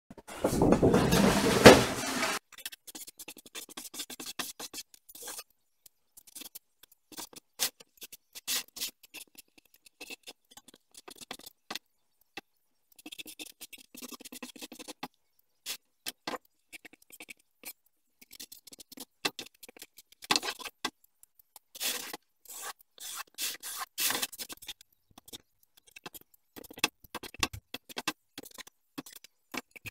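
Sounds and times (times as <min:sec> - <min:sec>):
marker scratching on board: 0:03.5 - 0:05.4, 0:21.7 - 0:25.3.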